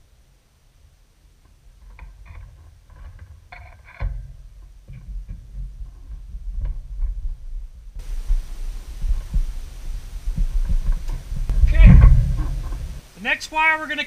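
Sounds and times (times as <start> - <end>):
low rumble: 5.6 - 13.1.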